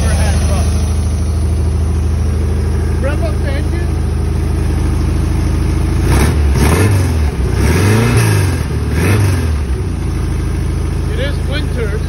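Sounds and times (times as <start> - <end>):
car engine idling and revving: 0.0 - 12.0.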